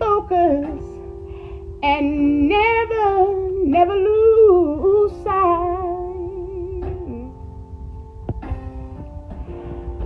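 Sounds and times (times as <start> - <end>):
woman singing wordless notes: 0.0 - 7.4
faint background song: 0.0 - 10.0.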